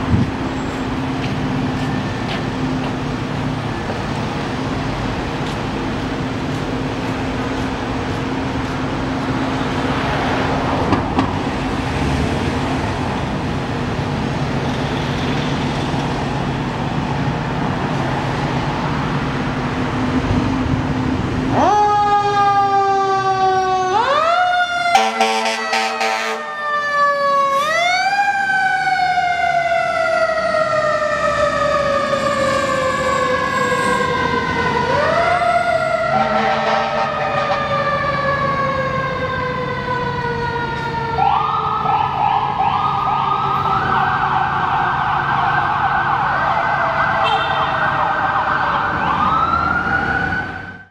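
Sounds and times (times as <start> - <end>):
fire engine running: 0.0 - 50.9
wailing siren: 21.4 - 50.9.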